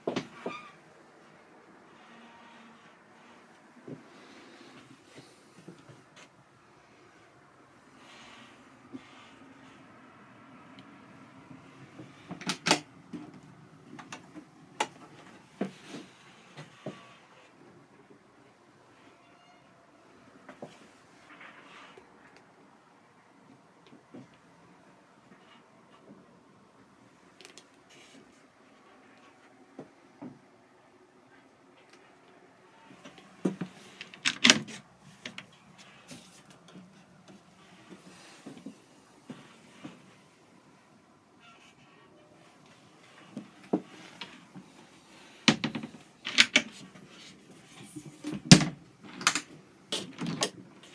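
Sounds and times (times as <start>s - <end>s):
cupboard doors clicking and knocking: 45.5s - 46.8s.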